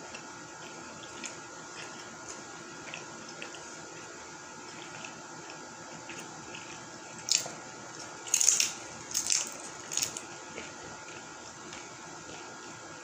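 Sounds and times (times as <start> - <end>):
crunching and chewing chips: 4.6 - 12.5.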